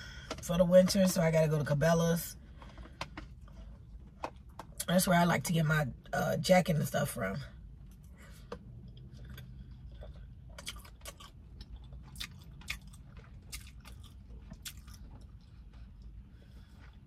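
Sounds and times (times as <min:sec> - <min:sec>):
person chewing food: 0:07.8 - 0:17.0.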